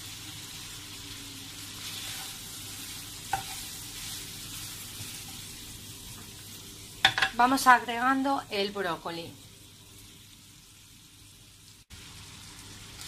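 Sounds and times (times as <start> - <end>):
bacon sizzling in a pan: 0.0 - 13.0.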